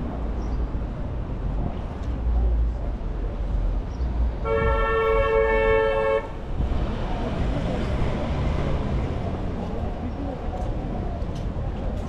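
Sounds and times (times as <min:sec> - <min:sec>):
street traffic rumble: 0:00.0 - 0:12.0
vehicle horn honk: 0:04.4 - 0:06.4.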